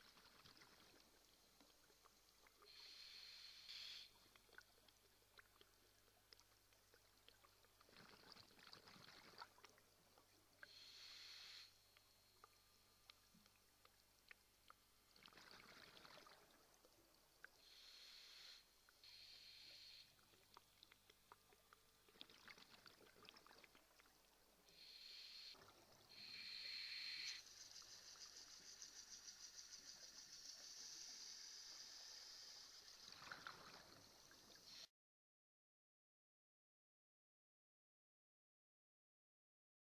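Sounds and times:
regulator hissing on inhalation: 2.7 - 4.1, 10.6 - 11.7, 17.6 - 20.1, 26.1 - 33.0
exhaled bubbles rushing: 15.2 - 16.6.

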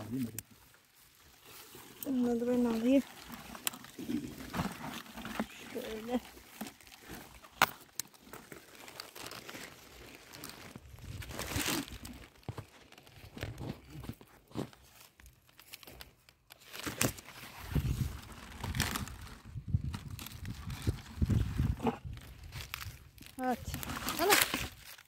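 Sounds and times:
cabbage leaves rustling: 0.0 - 13.2, 16.5 - 25.0.

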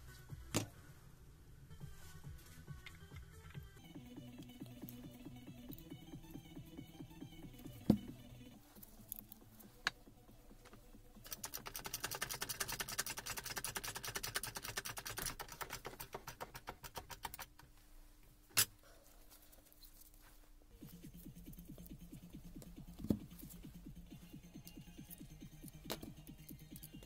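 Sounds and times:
fast run of clicks: 11.2 - 17.5.

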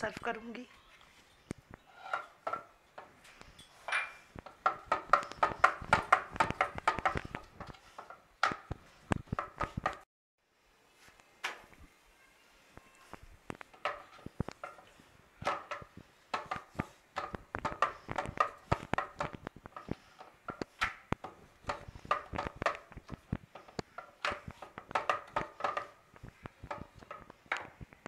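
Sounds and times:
ghee crackling and popping: 4.3 - 10.1, 12.8 - 28.0.

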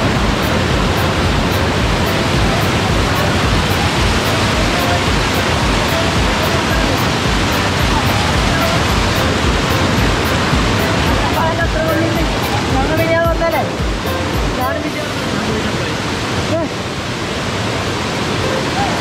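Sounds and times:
waterfall rushing and splashing: 0.0 - 19.0.

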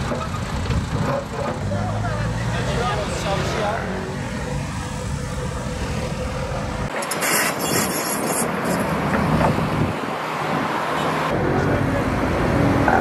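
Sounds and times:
diesel digging machines droning: 0.0 - 13.0.

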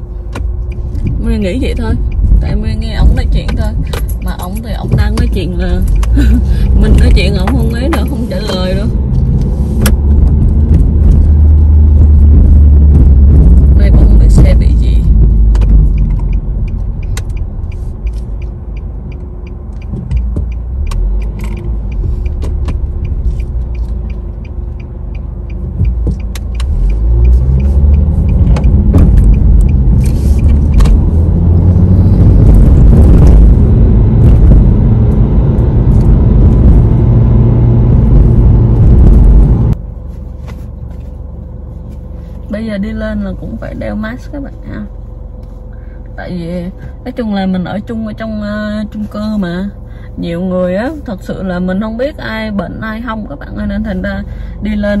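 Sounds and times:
regular ticking: 0.0 - 39.4
car engine and road rumble: 0.0 - 55.0.

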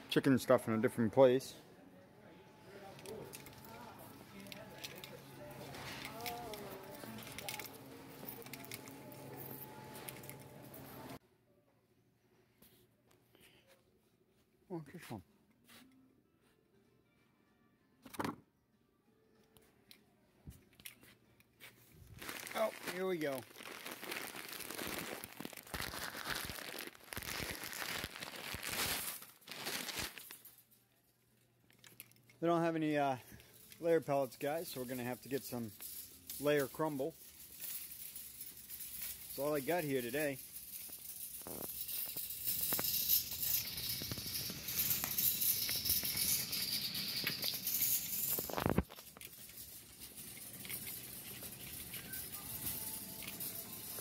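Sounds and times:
shopping cart wheels rattling: 2.8 - 11.2, 22.2 - 30.4, 33.7 - 54.0
plastic bag crinkling and rustling: 22.0 - 30.6, 38.9 - 45.2, 47.2 - 54.0.

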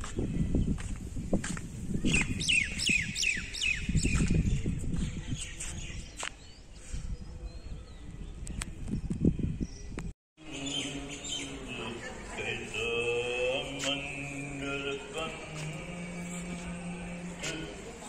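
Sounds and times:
wind rumbling on microphone: 0.0 - 10.1
bird chirping: 2.0 - 4.7, 7.4 - 12.0.

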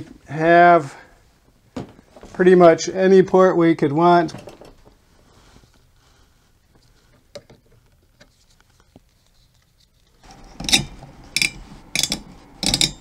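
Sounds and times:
screwdriver clicking: 11.4 - 13.0.

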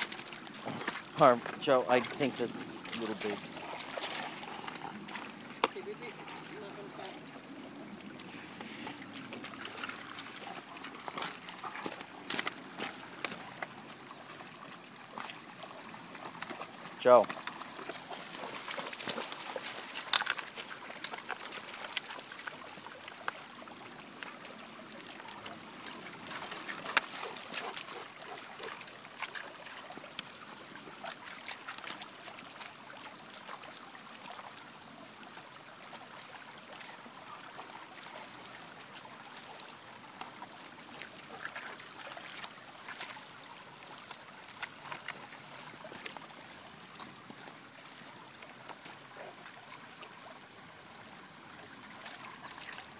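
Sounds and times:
dogs gnawing wood: 0.0 - 6.4, 8.5 - 13.8, 15.2 - 23.5, 24.1 - 32.0
water trickling over gravel: 0.0 - 52.9.

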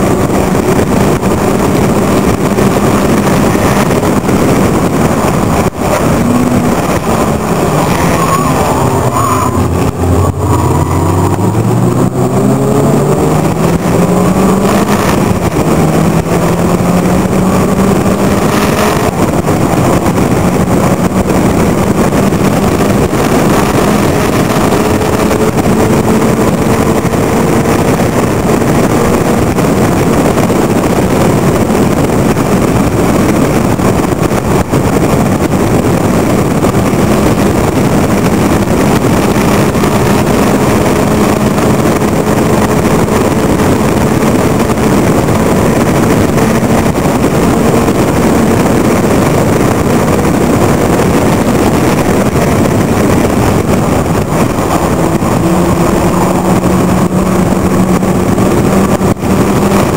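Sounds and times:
racing car engine revving: 0.0 - 59.9
wind rush: 0.0 - 59.9.

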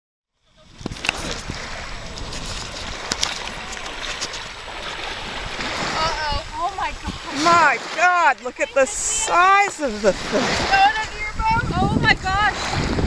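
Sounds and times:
wind: 0.3 - 13.0
faint voices: 0.4 - 12.6
water washing at shoreline: 0.4 - 13.0
short sharp splashes: 0.7 - 11.0.

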